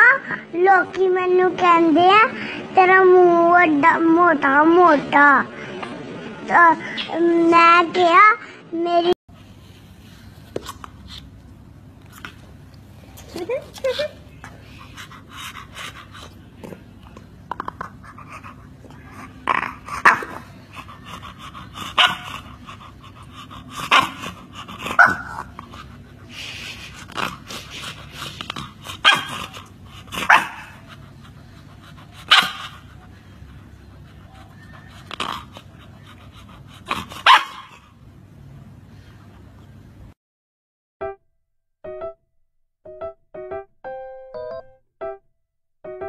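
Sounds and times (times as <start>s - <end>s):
puppy growling: 13.3s - 37.9s
puppy barking: 22.0s - 22.4s, 25.0s - 25.5s, 29.0s - 30.9s, 32.2s - 32.8s, 36.9s - 37.8s.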